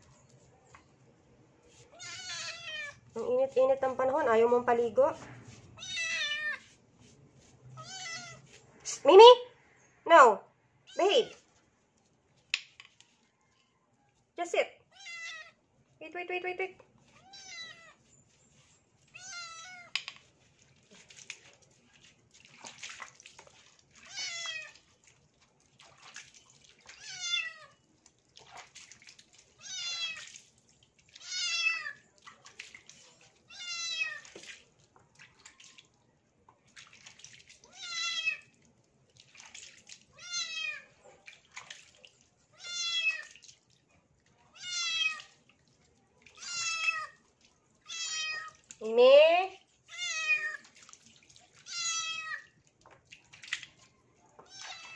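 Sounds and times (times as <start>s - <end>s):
kitten meowing: 2.0s - 2.9s, 7.8s - 8.4s.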